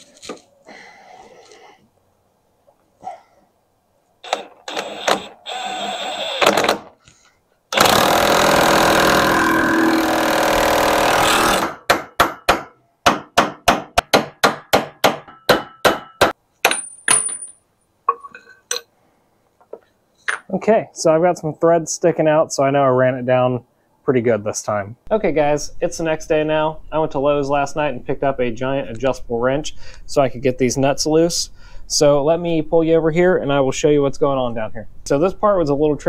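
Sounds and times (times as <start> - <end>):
impact wrench hammering: 10.6 - 17.5.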